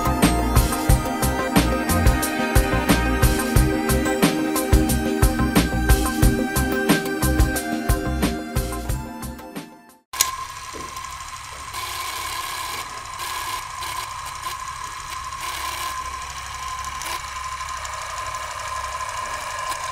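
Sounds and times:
film projector whirring and rattling: 0:10.2 - 0:19.9.

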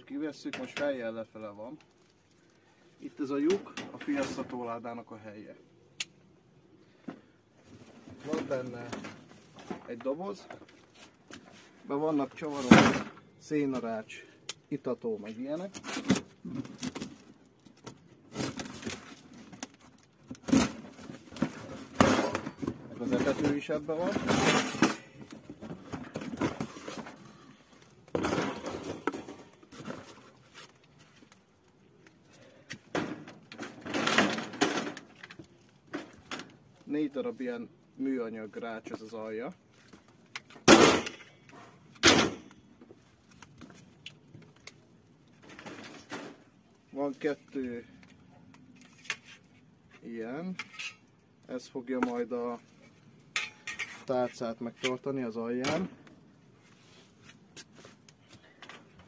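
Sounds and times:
rustling and scraping: 0:06.9 - 0:14.1, 0:15.1 - 0:37.6, 0:38.3 - 0:59.0.

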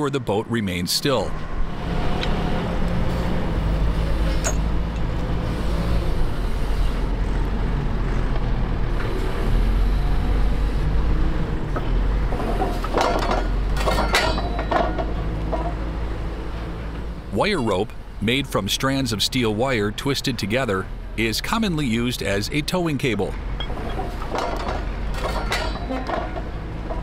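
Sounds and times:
heavy diesel engine humming: 0:00.0 - 0:27.0
sharp clattering: 0:12.5 - 0:15.8, 0:23.6 - 0:27.0.

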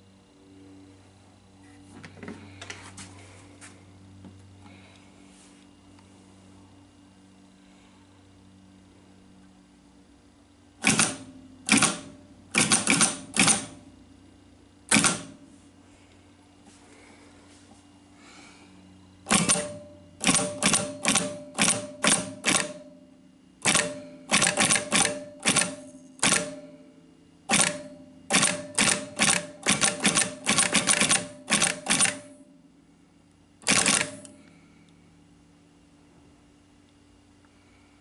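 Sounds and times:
keyboard perforator clacking: 0:10.8 - 0:13.8, 0:14.9 - 0:15.4, 0:19.3 - 0:22.9, 0:23.6 - 0:26.7, 0:27.5 - 0:32.4, 0:33.6 - 0:34.4.

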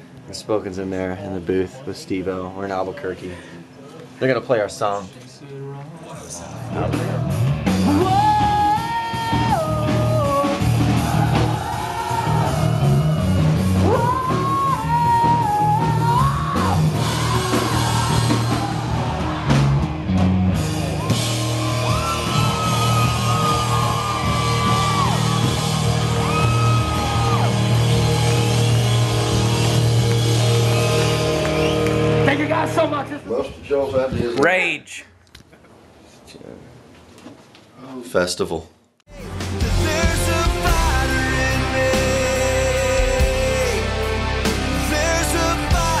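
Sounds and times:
rock song with singer: 0:06.7 - 0:32.4, 0:39.1 - 0:46.0
shouts: 0:10.7 - 0:19.9, 0:21.0 - 0:29.6.

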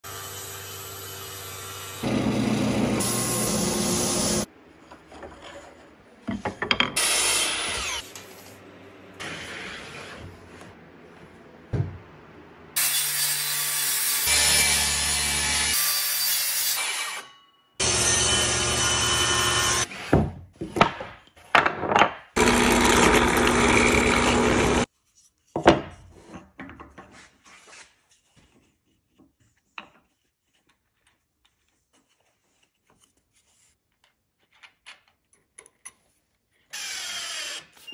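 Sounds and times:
circular saw cutting plywood: 0:00.0 - 0:04.5, 0:12.8 - 0:20.2, 0:22.4 - 0:24.9
wood lathe spinning: 0:17.8 - 0:19.9, 0:22.4 - 0:24.9
gouge cutting wood: 0:22.4 - 0:24.8.

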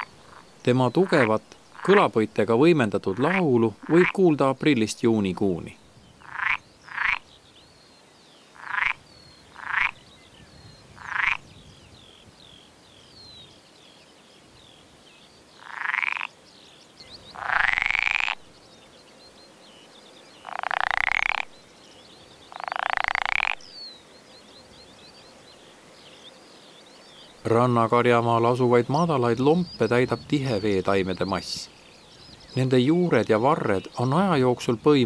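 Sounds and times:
frog croaking: 0:00.0 - 0:04.4, 0:06.2 - 0:07.3, 0:08.5 - 0:10.0, 0:11.0 - 0:11.5, 0:15.6 - 0:16.4, 0:17.2 - 0:18.5, 0:20.4 - 0:21.6, 0:22.5 - 0:23.8
faint bird chirps: 0:05.4 - 0:35.0.

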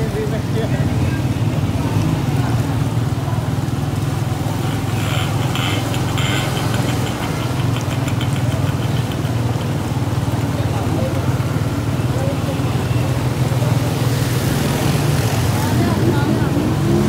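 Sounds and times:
water washing around engine: 0:00.0 - 0:17.0
rapid high clicks: 0:04.5 - 0:10.0.

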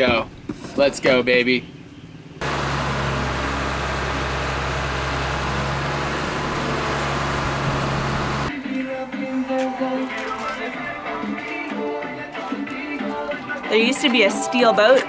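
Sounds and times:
crane engine running: 0:02.4 - 0:08.5.

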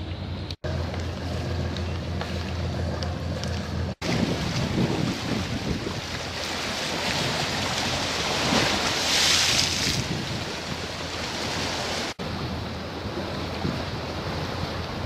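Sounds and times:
wind on microphone: 0:03.3 - 0:15.0
sea water washing: 0:04.0 - 0:15.0.

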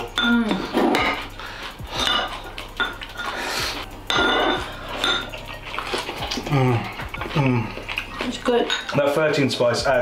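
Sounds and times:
chopsticks clinking on ceramic bowl: 0:04.1 - 0:05.7, 0:07.8 - 0:09.2.

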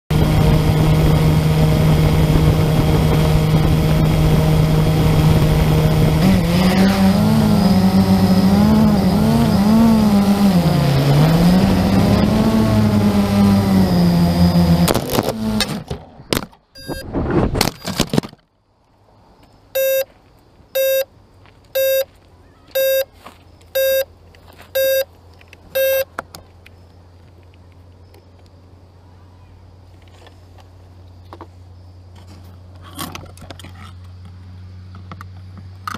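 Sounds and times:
quadcopter motors humming: 0:00.1 - 0:15.8
quadcopter crashing: 0:00.1 - 0:16.0
beeps: 0:16.8 - 0:17.1, 0:19.8 - 0:20.1, 0:20.8 - 0:21.1, 0:21.8 - 0:22.1, 0:22.8 - 0:23.1, 0:23.8 - 0:24.1, 0:24.8 - 0:25.1, 0:25.8 - 0:26.1.

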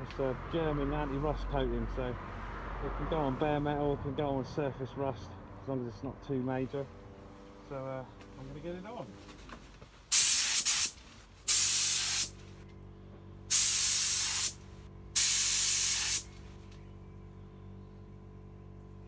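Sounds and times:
spray gun spraying: 0:10.1 - 0:12.4, 0:13.5 - 0:14.6, 0:15.2 - 0:16.3
faint low hum: 0:16.2 - 0:19.0.

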